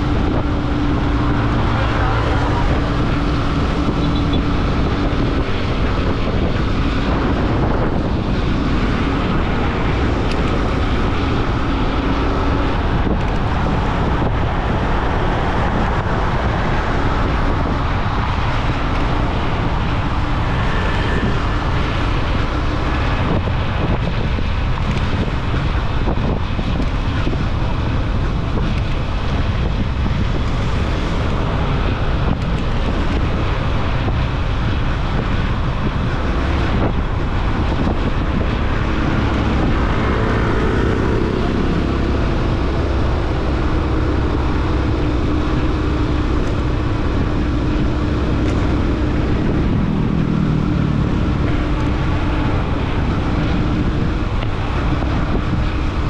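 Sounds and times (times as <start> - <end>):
motorcycle engine and road noise: 0.0 - 56.0
wind rush on microphone: 0.0 - 56.0.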